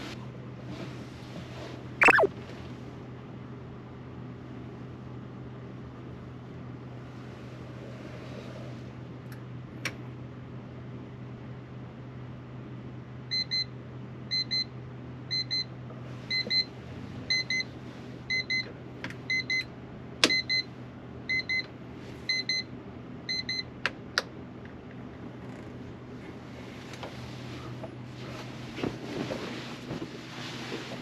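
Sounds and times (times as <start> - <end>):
electronic alarm double beeps: 2.0 - 2.3.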